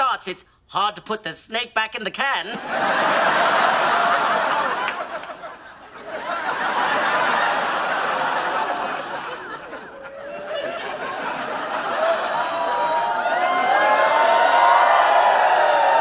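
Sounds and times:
studio audience laughing: 2.5s - 14.3s.

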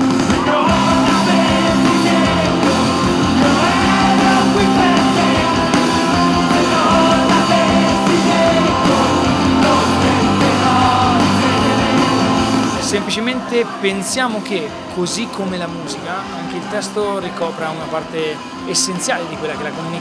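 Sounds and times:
live rock band: 0.0s - 20.0s
person singing: 0.3s - 14.0s.

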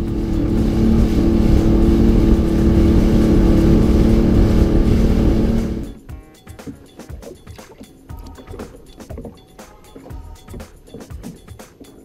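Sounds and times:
jet ski engine: 0.0s - 6.0s
rush of churned water: 0.0s - 6.0s.

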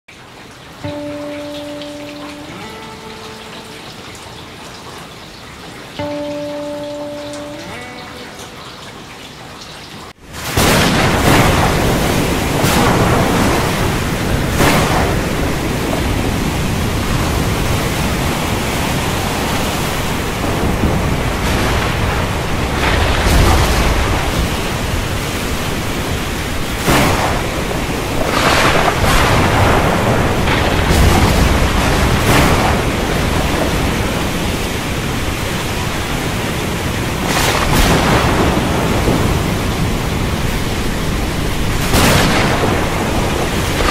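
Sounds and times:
heavy rain: 0.1s - 43.9s
sharp thunder cracks: 10.4s - 17.8s, 20.4s - 25.2s, 26.8s - 35.0s, 37.2s - 43.9s
thunder rumbling: 10.4s - 43.9s.

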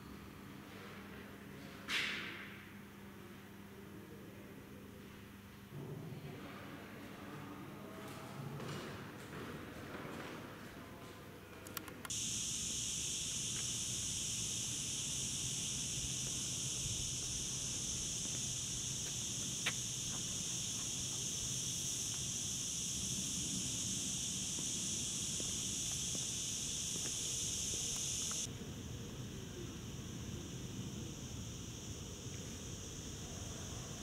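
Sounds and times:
cicadas singing: 12.1s - 34.0s.

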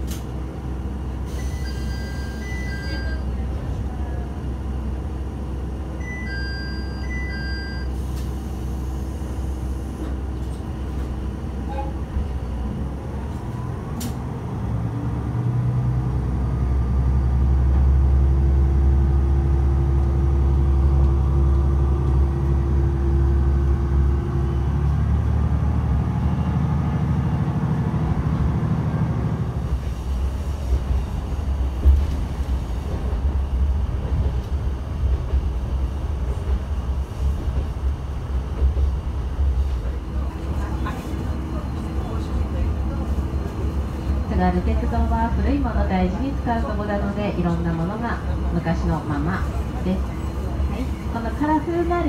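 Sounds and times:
diesel railcar engine revving: 0.0s - 52.0s
short beeps: 1.4s - 3.3s, 6.0s - 8.0s.

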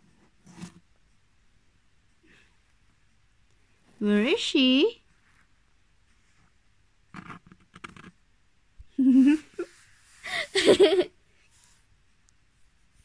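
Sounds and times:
woman laughing and giggling: 8.9s - 11.2s.

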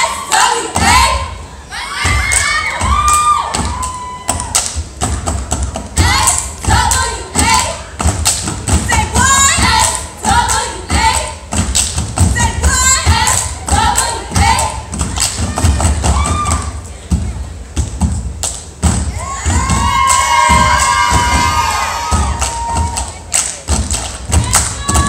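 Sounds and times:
stomps and hand claps: 2.1s - 16.8s, 17.8s - 25.0s.

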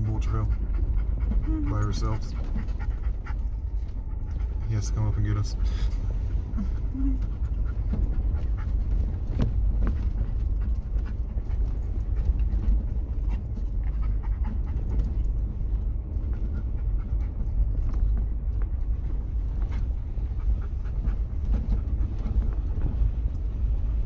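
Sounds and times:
engine and tyres rumbling: 0.0s - 24.0s
rattles and knocks from bumps: 7.2s - 24.0s.

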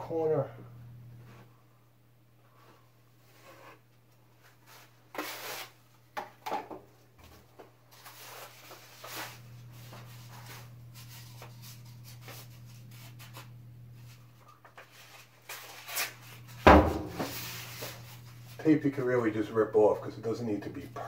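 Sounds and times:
steady low hum: 0.0s - 3.4s, 8.6s - 14.6s, 16.1s - 21.0s
drywall tools scraping and rubbing: 2.5s - 5.8s, 7.2s - 18.7s
paper tape unrolling rustle: 4.6s - 5.8s, 7.9s - 16.6s.

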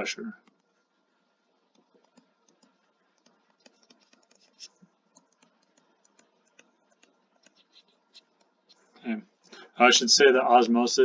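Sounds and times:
stylus writing on tablet screen: 0.4s - 8.9s.

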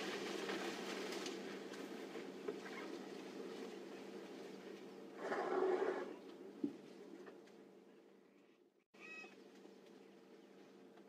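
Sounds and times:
leaves rustling: 0.0s - 5.0s.

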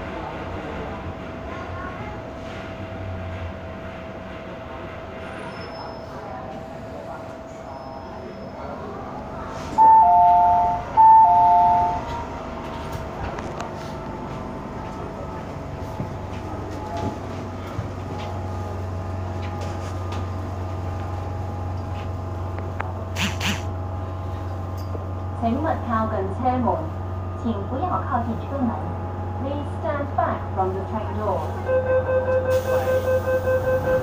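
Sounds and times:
train running noise: 0.0s - 34.0s
passengers moving knocks: 11.9s - 18.4s.

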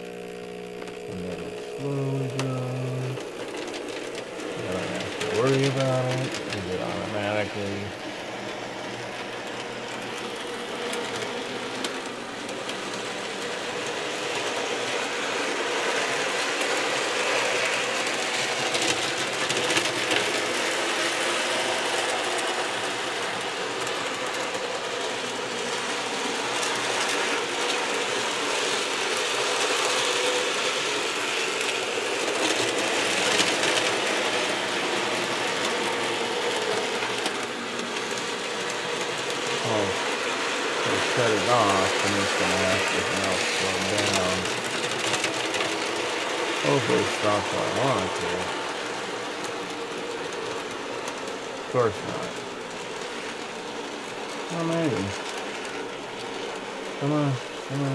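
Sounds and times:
model train whirring and rattling: 0.0s - 57.9s.

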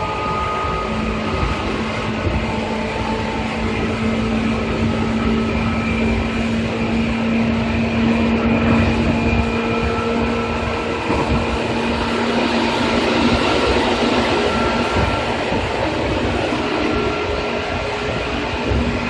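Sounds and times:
electric train running: 0.0s - 19.0s.

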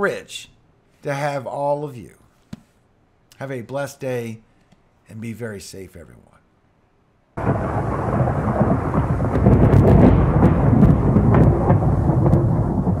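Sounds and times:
rolling thunder with crackles: 7.4s - 13.0s.

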